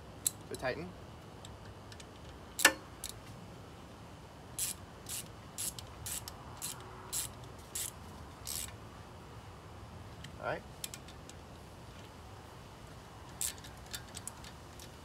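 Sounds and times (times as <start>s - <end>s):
socket ratchet clicking: 4.6s - 8.8s, 13.3s - 15.0s.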